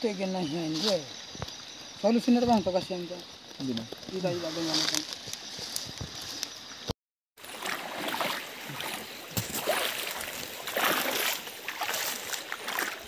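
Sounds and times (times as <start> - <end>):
water splashing and sloshing: 7.4 - 13.0.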